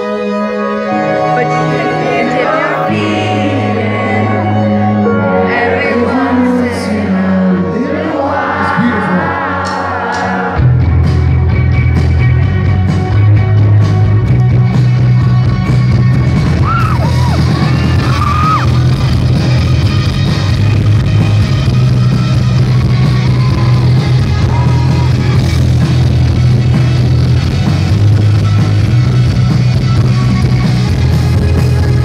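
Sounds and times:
electric guitar: 0.0s - 8.0s, 8.8s - 32.0s
person singing: 0.0s - 10.8s
heavy bass guitar: 0.0s - 32.0s
keyboard chords: 0.0s - 32.0s.

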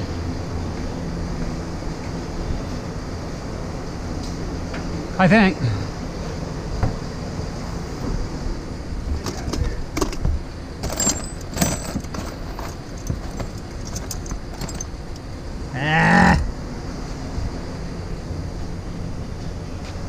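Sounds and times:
hand tools clinking: 9.2s - 15.4s.

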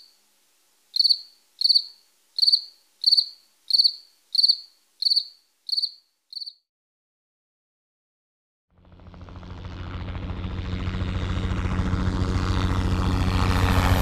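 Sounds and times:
cricket chirping: 0.0s - 0.2s, 0.9s - 6.6s.

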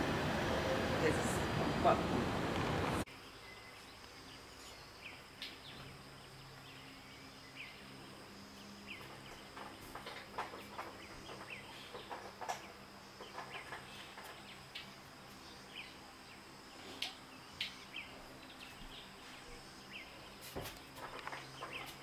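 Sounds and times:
bird calls and chirps: 3.1s - 22.0s.

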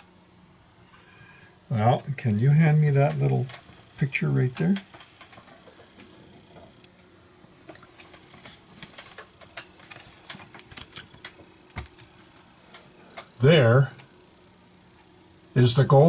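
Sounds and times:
faint steady hum: 0.0s - 16.0s
picture frame clicks and rustles: 7.9s - 12.9s.

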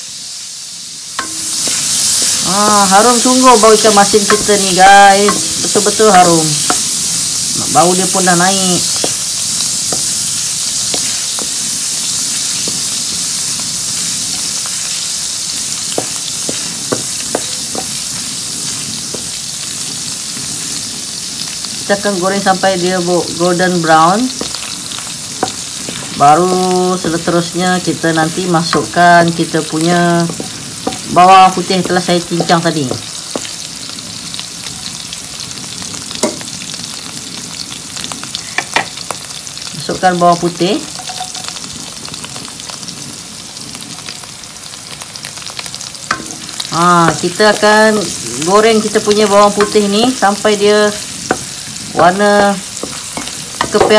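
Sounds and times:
fish sizzling in hot oil: 0.0s - 53.9s
wooden spatula stirring: 8.8s - 12.9s, 15.8s - 19.4s, 29.8s - 33.6s.

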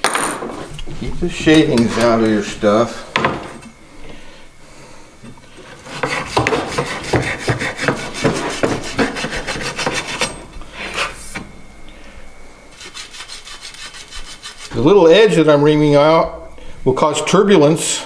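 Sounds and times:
rasping scraping on copper pipe: 5.4s - 11.2s, 12.8s - 14.9s.

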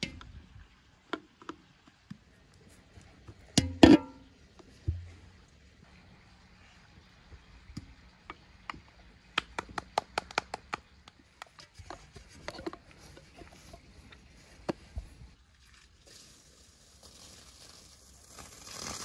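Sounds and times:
clicks and taps in metal pot: 3.6s - 4.3s.

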